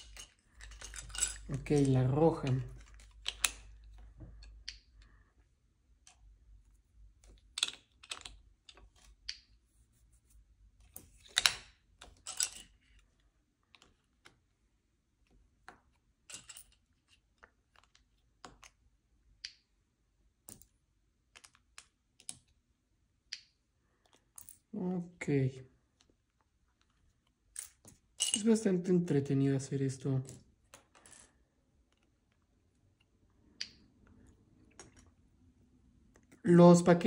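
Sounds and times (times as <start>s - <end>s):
plastic toy bricks clicking: 0.0s - 4.9s, 7.2s - 9.5s.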